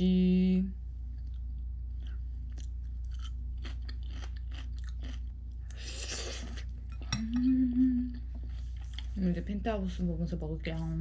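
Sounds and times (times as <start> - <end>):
person chewing crunchy food: 1.2 - 7.0.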